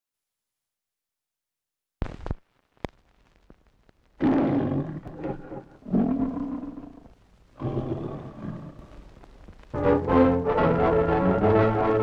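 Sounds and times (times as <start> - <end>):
film soundtrack pops and crackle: 2.0 - 12.0
lion roaring: 4.2 - 9.0.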